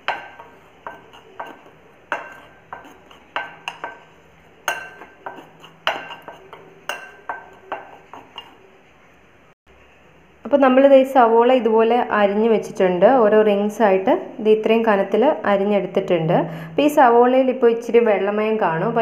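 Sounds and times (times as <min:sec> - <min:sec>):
spoon stirring flour in glass bowl: 0:00.0 - 0:08.7
spoon clinking on glass: 0:04.7 - 0:08.6.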